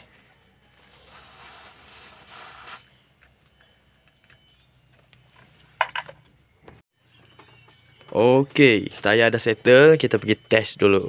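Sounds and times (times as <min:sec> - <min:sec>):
compressed air hissing: 0:00.7 - 0:02.9.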